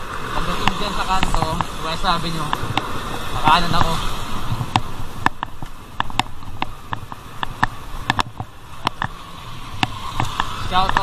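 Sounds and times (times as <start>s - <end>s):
tyres rumbling and wind: 0.0s - 11.0s
bicycle clicks and rattles: 4.6s - 11.0s.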